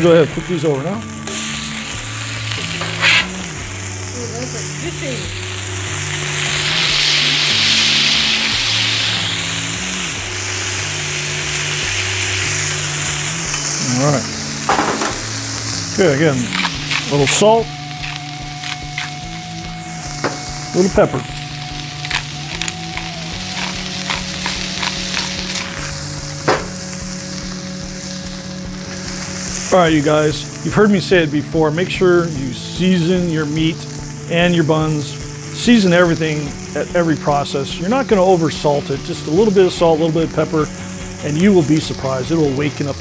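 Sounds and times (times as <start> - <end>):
patties sizzling on griddle: 0.0 - 43.0.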